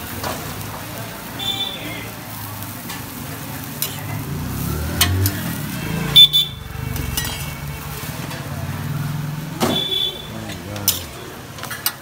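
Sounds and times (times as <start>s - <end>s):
metal spatula scraping griddle: 2.8s - 8.6s, 10.5s - 12.0s.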